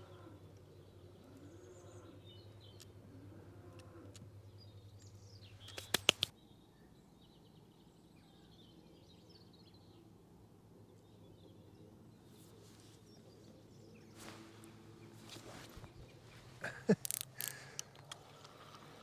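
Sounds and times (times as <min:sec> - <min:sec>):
faint birdsong: 0:00.0 - 0:19.0
lakeside ambience: 0:00.0 - 0:19.0
fishing reel clicks: 0:17.0 - 0:18.2.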